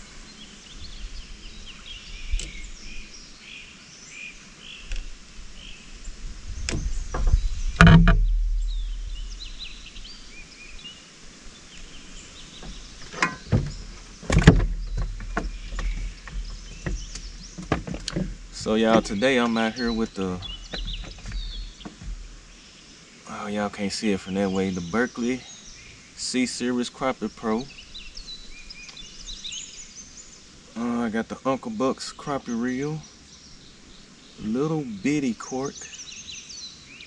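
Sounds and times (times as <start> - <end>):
birds chirping: 0.0 - 37.0
knocks and thumps in a boat: 6.7 - 9.4, 12.6 - 22.6.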